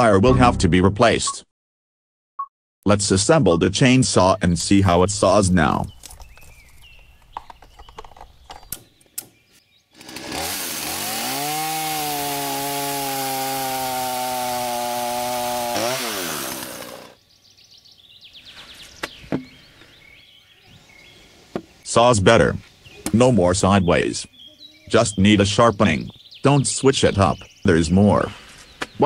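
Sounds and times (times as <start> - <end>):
chainsaw cutting through log: 9.9 - 17.2.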